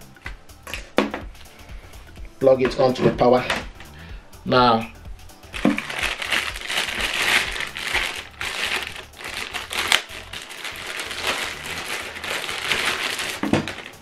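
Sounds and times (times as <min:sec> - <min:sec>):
plastic bag crinkling: 0:05.6 - 0:14.0.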